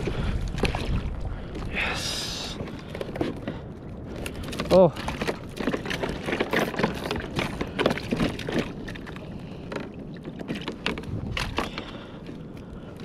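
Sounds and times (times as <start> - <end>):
knocks and taps on kayak: 9.7 - 11.9.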